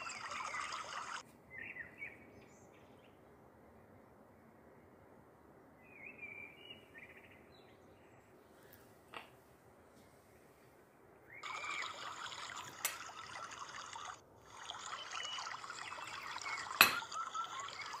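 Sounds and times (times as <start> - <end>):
water trickling: 0.0 - 1.2, 11.4 - 18.0.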